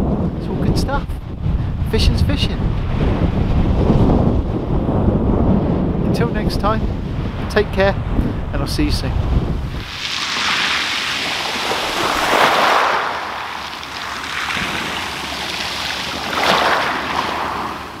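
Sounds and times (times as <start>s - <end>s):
waves washing over shingle: 9.6s - 18.0s.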